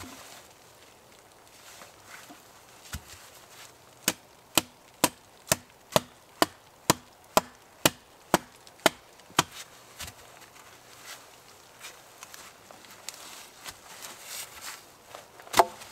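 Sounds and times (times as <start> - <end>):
hatchet chopping wood: 4.0 - 10.2, 15.5 - 15.8.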